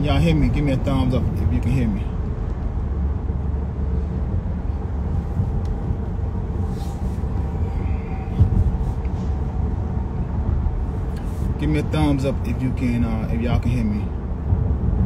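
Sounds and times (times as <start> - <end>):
faint hum: 0.0 - 15.0
low rumble: 0.0 - 15.0.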